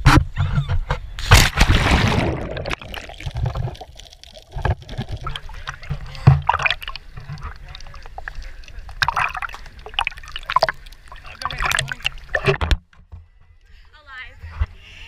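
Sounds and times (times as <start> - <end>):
splash into water: 1.2 - 8.0, 9.0 - 12.6.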